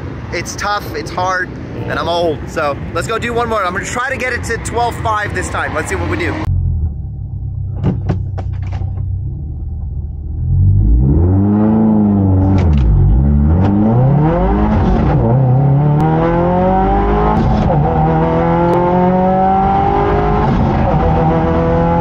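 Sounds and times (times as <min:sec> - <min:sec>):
car engine accelerating hard: 0:09.2 - 0:22.0.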